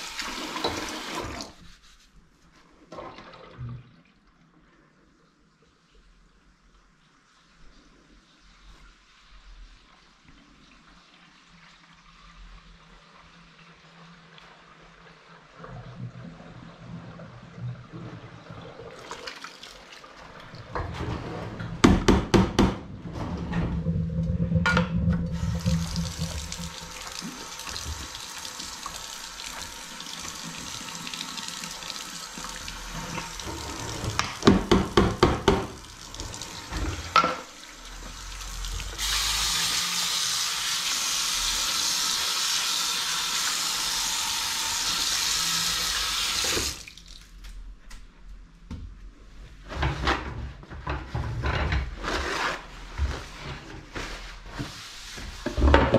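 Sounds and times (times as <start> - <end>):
sponge scrubbing sink basin: 0.0 - 2.8, 23.1 - 37.2, 51.0 - 55.9
tap running into a sink: 0.2 - 1.6, 24.6 - 39.4.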